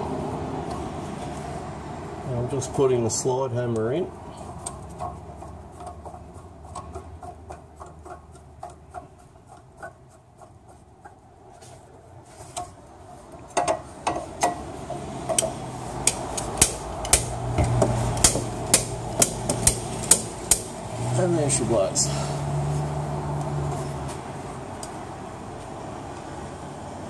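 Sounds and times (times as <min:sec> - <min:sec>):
light ticking and scraping: 0:03.7 - 0:20.6
sharp metallic knocks: 0:13.5 - 0:20.8.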